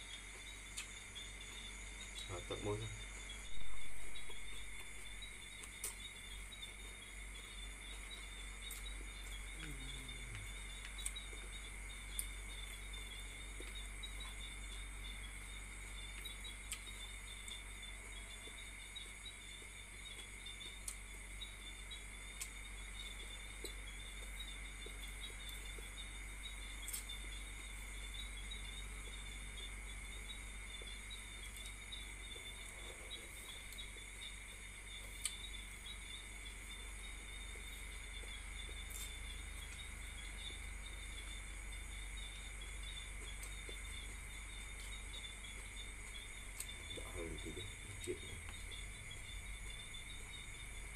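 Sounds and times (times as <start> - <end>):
crickets trilling: 0.0 - 50.9.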